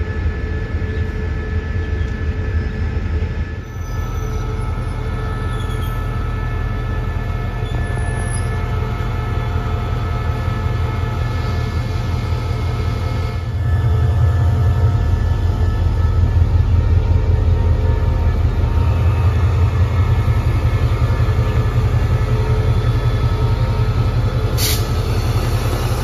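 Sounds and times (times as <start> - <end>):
diesel train engine rumble: 0.0 - 26.0.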